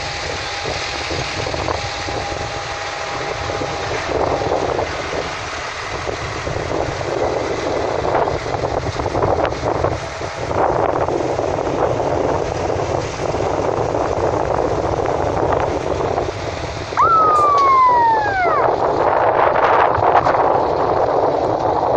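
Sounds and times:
wind buffeting microphone: 0.0s - 21.9s
whistle-like tone: 17.0s - 18.8s.

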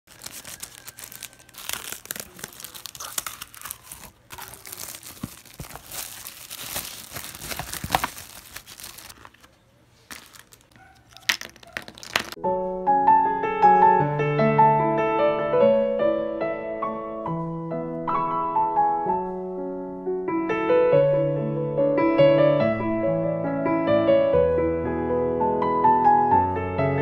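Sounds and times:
plastic packaging crinkling and tearing: 0.0s - 12.4s
piano music: 0.1s - 9.1s, 12.3s - 27.0s.

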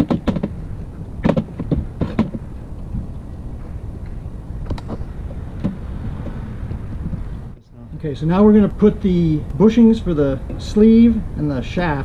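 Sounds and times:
knocks and rubbing of rubber pad: 0.0s - 0.6s, 1.2s - 3.1s
steady low rumble: 0.0s - 12.0s.

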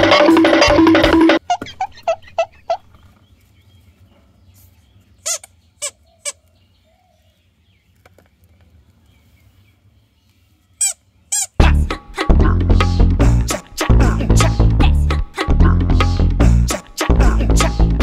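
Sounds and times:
rubber squeeze toys squeaking: 5.2s - 6.4s, 10.8s - 11.6s.

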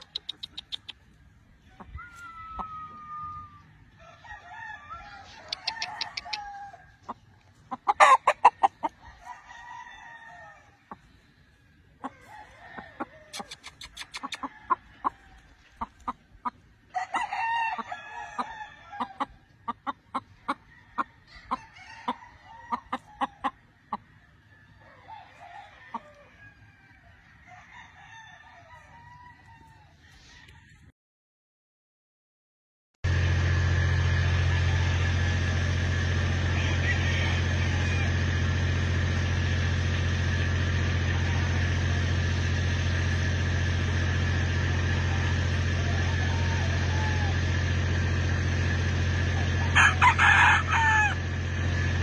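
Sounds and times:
rapid short clucks: 0.0s - 1.2s, 13.3s - 15.2s
roosters crowing: 0.0s - 30.9s, 33.1s - 52.0s.

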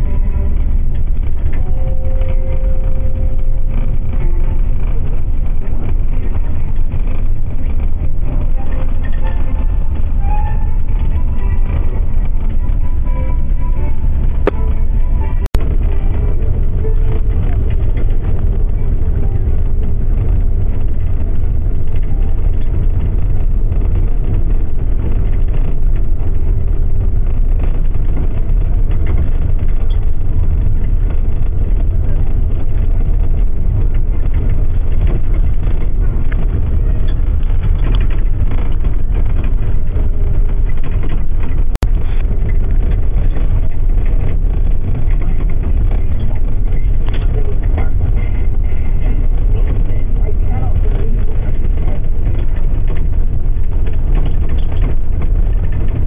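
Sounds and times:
bus engine and road noise: 0.0s - 56.0s.

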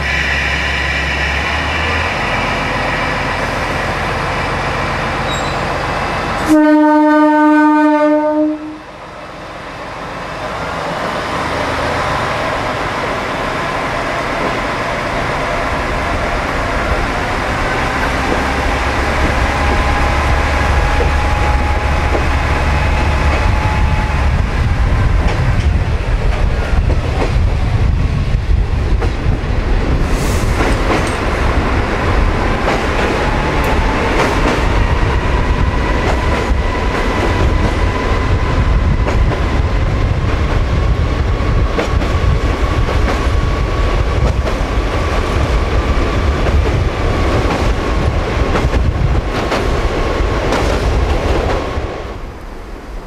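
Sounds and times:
diesel railcar engine running: 0.0s - 8.0s, 8.8s - 53.0s
train horn blast: 6.4s - 8.9s
wheels clacking over rail joints: 16.9s - 23.8s, 30.6s - 34.9s.

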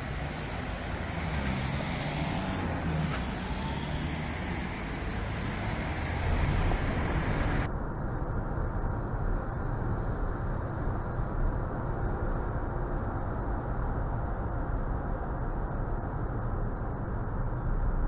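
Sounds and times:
passing car traffic: 0.0s - 7.7s
muffled car interior road noise: 0.0s - 18.0s.

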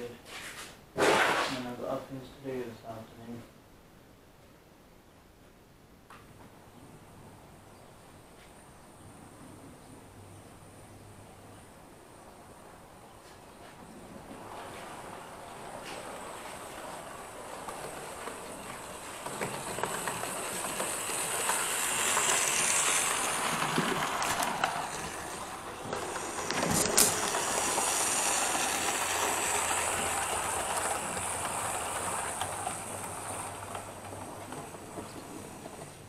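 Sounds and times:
model train whirring: 14.3s - 36.0s.

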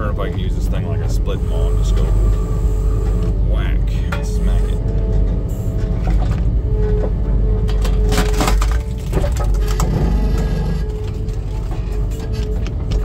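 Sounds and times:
skid steer whining: 0.0s - 13.0s
wood cracking and splintering: 7.6s - 13.0s.

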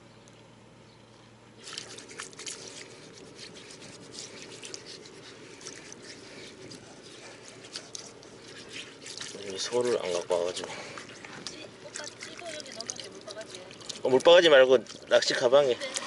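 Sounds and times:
water trickling and dripping: 7.6s - 16.0s.

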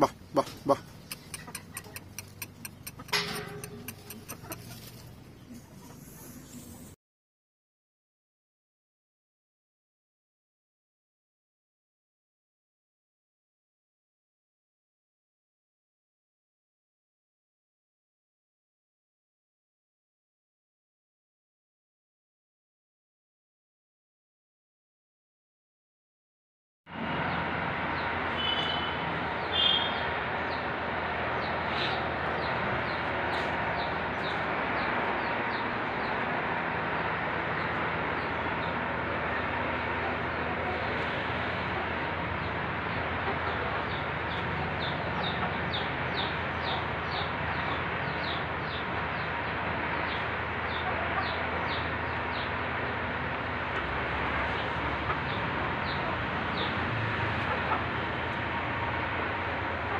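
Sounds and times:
chick peeping: 0.4s - 6.1s.

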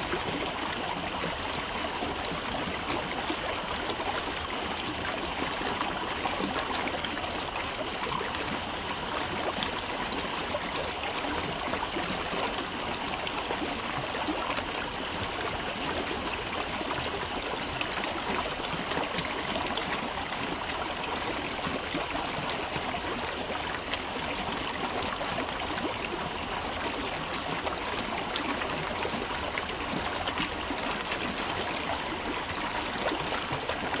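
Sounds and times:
brook water babbling: 0.0s - 34.0s.

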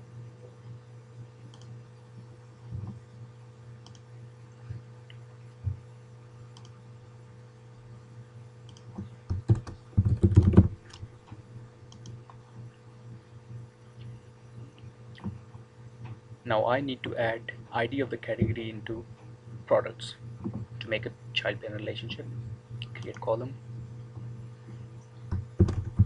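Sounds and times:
steady low hum: 0.0s - 26.0s
keyboard typing: 8.7s - 11.1s, 25.3s - 26.0s.

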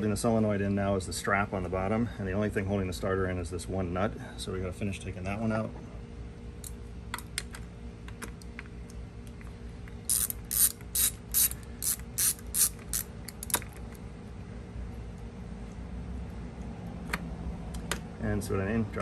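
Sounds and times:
socket ratchet clicking: 10.1s - 13.7s.

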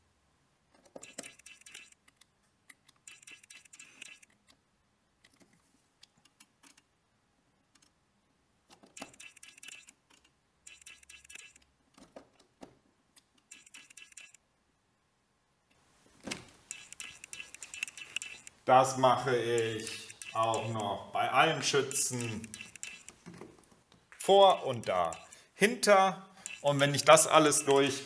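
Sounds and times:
test probe clicking on metal terminals: 8.9s - 11.7s, 13.2s - 14.4s, 16.6s - 18.6s, 19.5s - 21.0s, 21.6s - 23.2s, 24.3s - 25.5s, 26.4s - 27.9s.

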